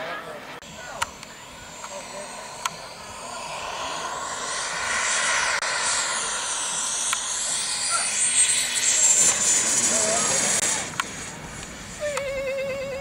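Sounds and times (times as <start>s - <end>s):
model jet rushing whine: 0.2s - 13.0s
high whistle sliding down: 1.1s - 10.6s.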